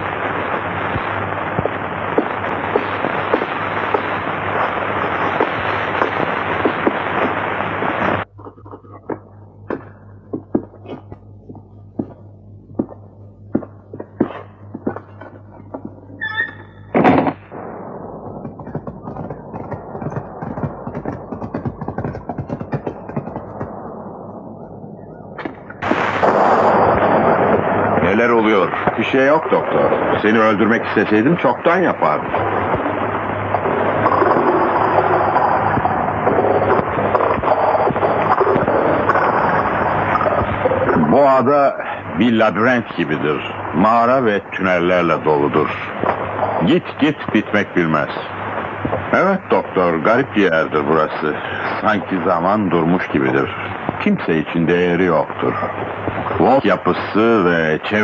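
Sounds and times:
low hum: 0.0s - 57.9s
crackling hiss with pops: 0.0s - 58.0s
loud even rushing noise: 17.4s - 40.8s
horses galloping on dirt: 18.3s - 23.8s.

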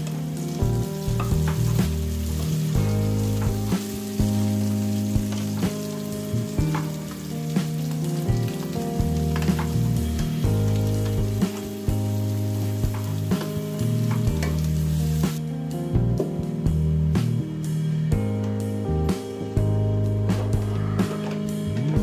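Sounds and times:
onions sizzling in oil: 0.0s - 15.4s
background music: 0.0s - 22.0s.

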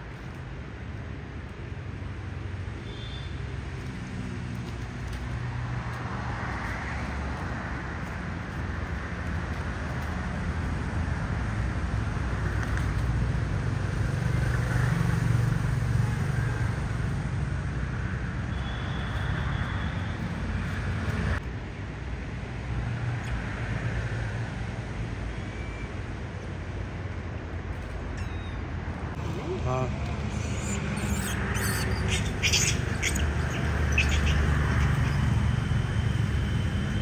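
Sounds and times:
vehicle rumble and road noise: 0.0s - 37.0s.

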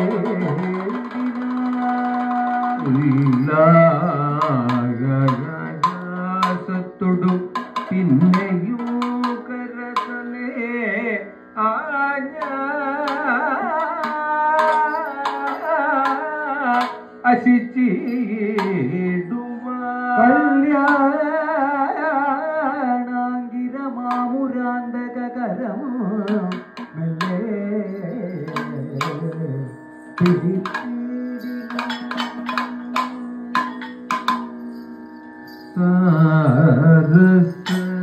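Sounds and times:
sharp percussion strikes: 0.0s - 10.5s, 12.4s - 19.6s, 26.2s - 38.0s
man singing ornamented melody: 0.0s - 38.0s.

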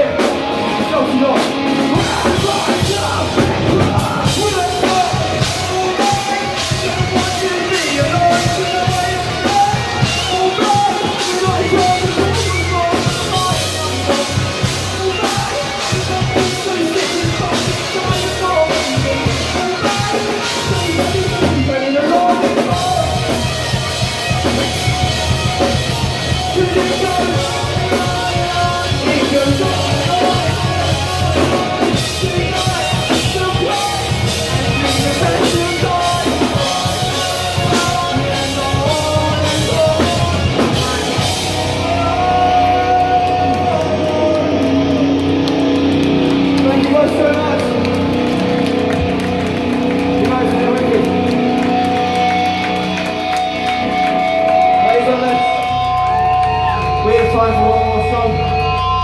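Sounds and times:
person singing into a microphone: 0.0s - 45.7s
drum kit: 0.0s - 59.0s
electric bass: 0.0s - 59.0s
electric guitar: 0.0s - 59.0s.

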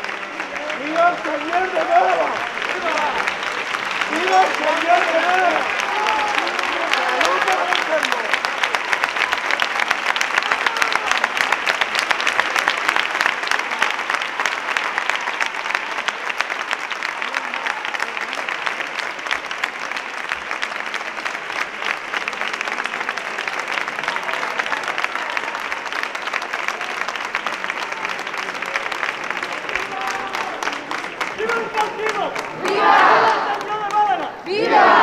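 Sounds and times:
crowd applauding: 0.0s - 35.0s
voices: 29.6s - 35.0s.

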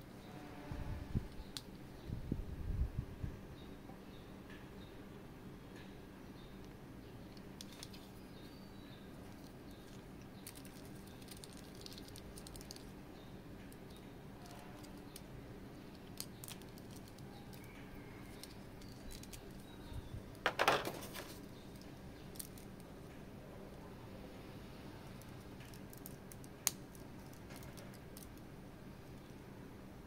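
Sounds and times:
plastic parts clattering: 20.4s - 22.7s.

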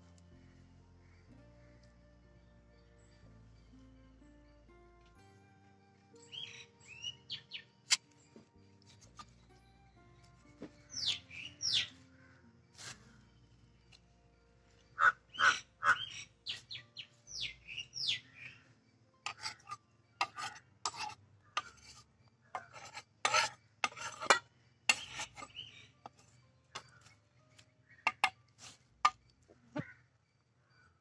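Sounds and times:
birds chirping: 6.1s - 28.4s
knife scraping fish on wood: 19.2s - 27.0s, 28.0s - 29.2s.

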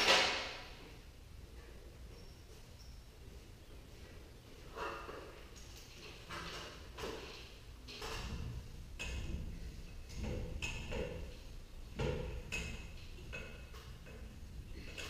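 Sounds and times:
stepladder knocks and clanks: 0.0s - 0.9s, 4.7s - 15.0s.

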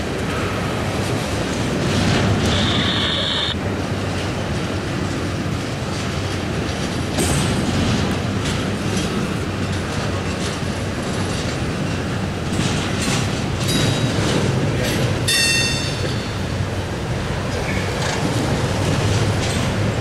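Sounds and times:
train wheels rumbling on rails: 0.0s - 20.0s
high-pitched wheel squeal: 2.4s - 3.6s.

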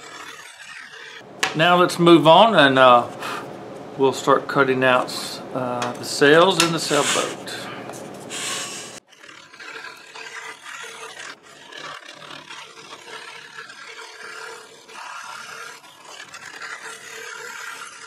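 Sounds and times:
scroll saw cutting wood: 0.0s - 1.2s, 6.4s - 7.6s, 8.3s - 18.0s.

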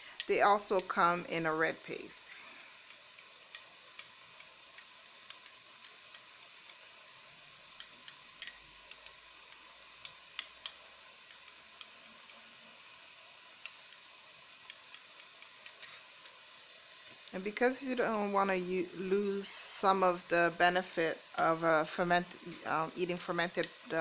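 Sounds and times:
metal spoon clinking on glass: 4.4s - 6.8s, 7.8s - 12.2s, 15.6s - 16.4s.

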